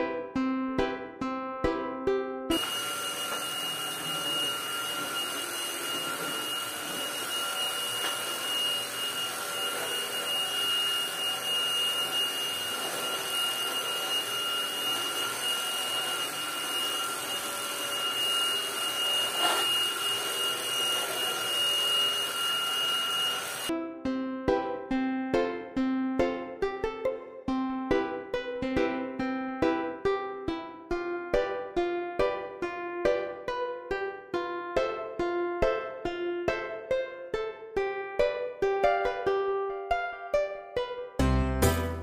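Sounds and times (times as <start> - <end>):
stick vacuum whining: 2.5 - 23.7.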